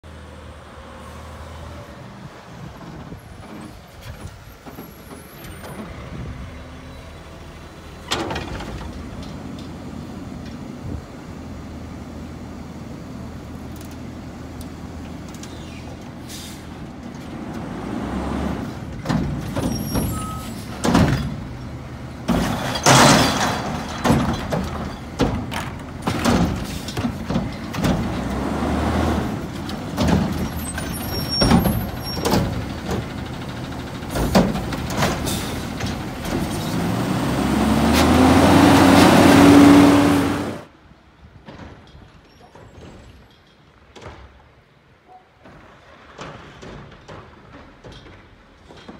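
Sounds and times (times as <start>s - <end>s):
garbage truck diesel engine: 0.0s - 44.0s
metal bangs and clanks: 18.7s - 28.4s, 29.4s - 36.9s.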